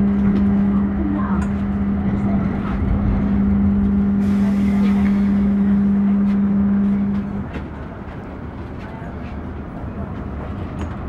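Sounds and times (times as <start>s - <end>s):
tram hum: 0.0s - 11.0s
tram low rumble: 0.0s - 11.0s.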